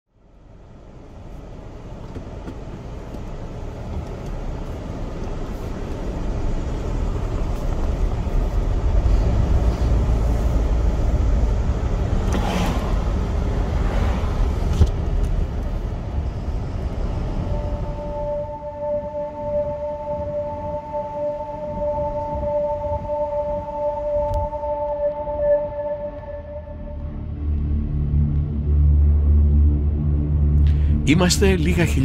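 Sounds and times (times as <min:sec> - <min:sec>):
car road and engine rumble: 0:00.1 - 0:32.0
ringing music tones: 0:17.2 - 0:29.8.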